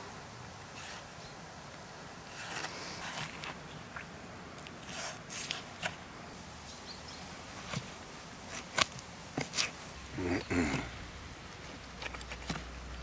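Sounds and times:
knife scraping and tearing flesh: 0.8 - 1.1, 2.3 - 3.6, 4.6 - 6.0, 7.7 - 9.8.

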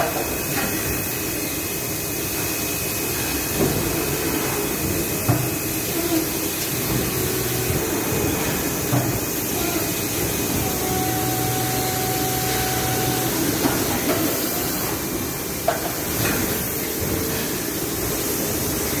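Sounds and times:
machine hiss and hum: 0.0 - 19.0
held whine: 6.9 - 15.0.

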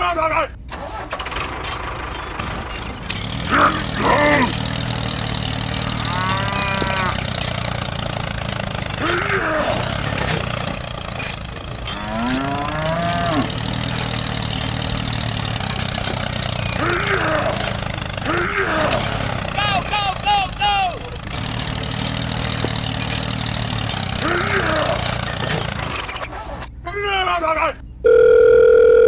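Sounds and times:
tractor engine drone: 0.6 - 26.7
cow mooing: 3.2 - 19.7.

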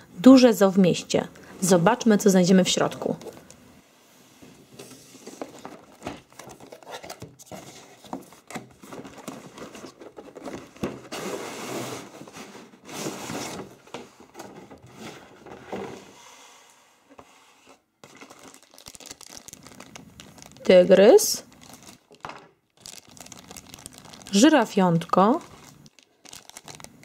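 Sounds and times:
cardboard rustling: 4.6 - 16.0, 25.3 - 27.0
cardboard box scraping on table: 11.0 - 13.8, 14.4 - 16.6.

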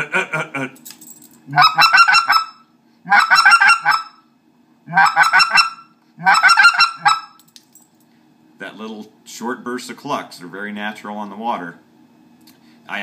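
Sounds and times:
goose call clucks: 1.5 - 4.2, 4.9 - 7.4.

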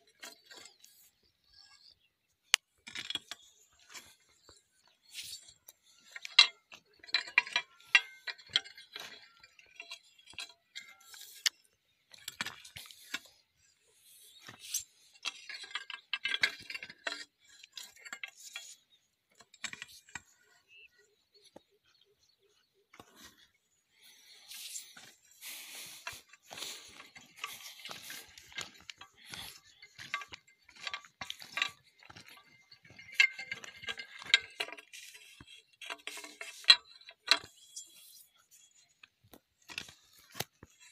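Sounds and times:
hoe scraping stony soil: 0.0 - 20.9, 23.0 - 40.9.

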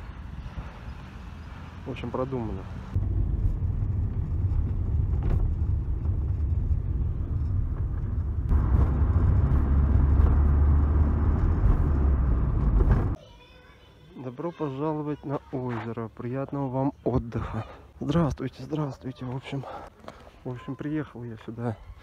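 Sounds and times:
engine and road rumble: 0.0 - 13.2.

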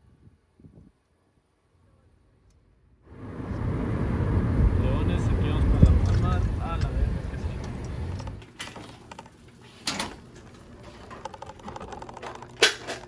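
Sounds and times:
low car rumble: 3.0 - 9.3
sharp knocks and clatters: 8.2 - 13.0.

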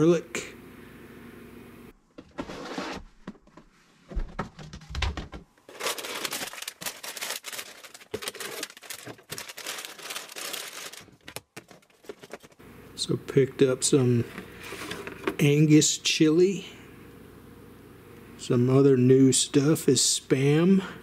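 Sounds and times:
foil pouches crinkling: 5.6 - 12.6.

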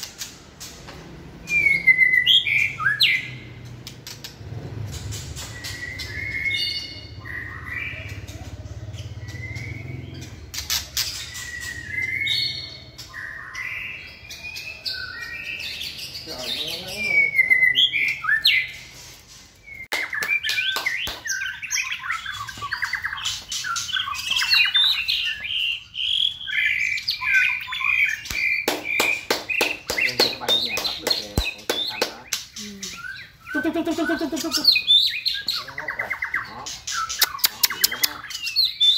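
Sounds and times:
bird singing whistled phrases: 1.4 - 3.4, 5.5 - 8.2, 11.1 - 18.8, 19.7 - 38.9
harsh clicking bird notes: 28.2 - 33.1, 36.8 - 38.6.

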